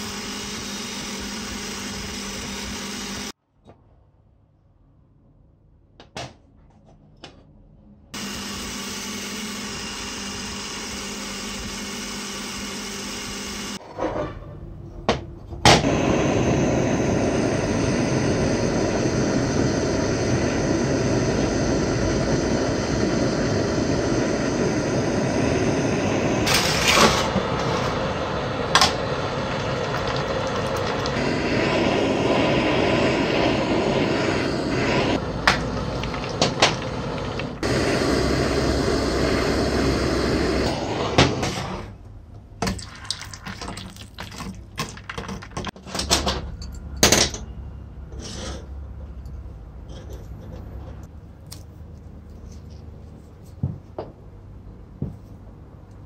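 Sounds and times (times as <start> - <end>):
gas torch rushing flame: 0.0 - 3.4, 8.2 - 13.8, 15.8 - 42.0
machine hum: 15.9 - 40.9.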